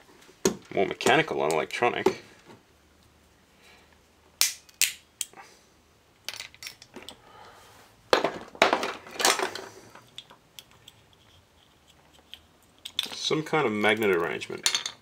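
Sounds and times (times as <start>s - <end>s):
plastic parts clattering: 8.1s - 11.0s, 12.2s - 15.0s.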